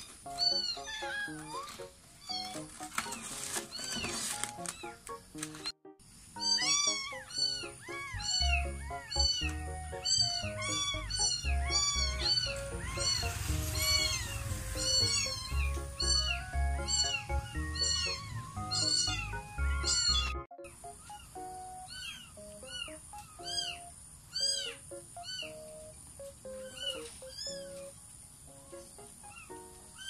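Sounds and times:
kitten mewing: 6.4 - 20.3
background music with bass beat: 10.4 - 20.4.

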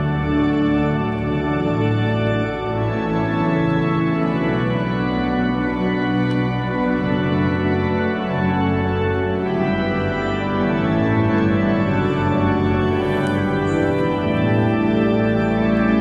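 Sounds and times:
organ playing slow chords: 0.0 - 16.0.

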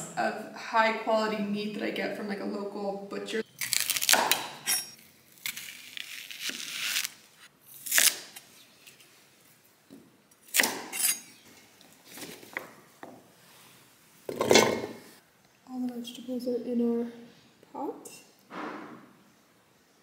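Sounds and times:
knife crunching through onion: 3.6 - 9.0, 10.4 - 11.3.

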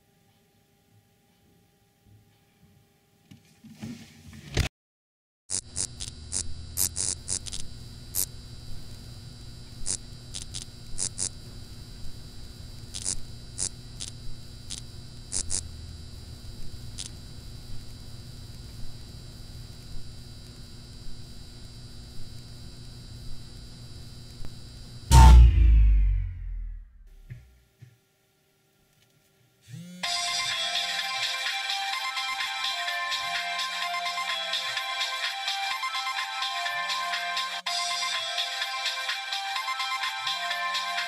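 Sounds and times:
neon sign humming: 5.5 - 27.5, 29.6 - 34.8.

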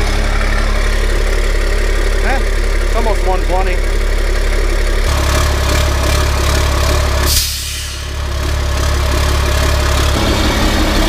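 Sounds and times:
diesel engine idling: 0.0 - 11.0
sharp air hiss: 7.3 - 8.1.

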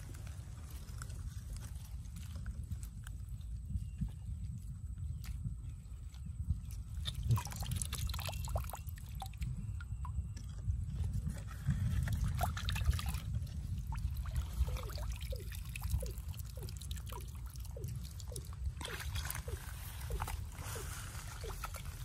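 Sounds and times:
shallow water sloshing: 5.2 - 22.0
low rumble: 9.1 - 22.0.

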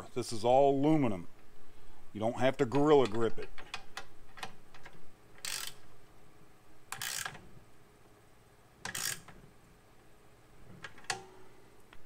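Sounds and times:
ratchet wrench clicking: 5.4 - 5.8, 6.9 - 7.4, 8.8 - 9.4.

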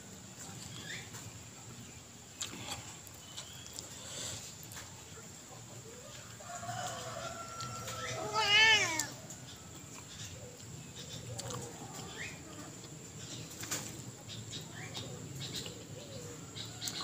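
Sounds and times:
cat meowing: 8.2 - 9.1.

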